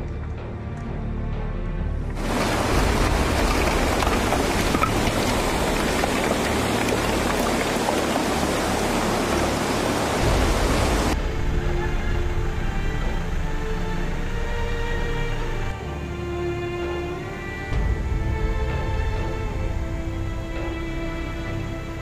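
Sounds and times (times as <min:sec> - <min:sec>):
background music: 0:00.0 - 0:22.0
heavy rain hissing: 0:02.2 - 0:15.7.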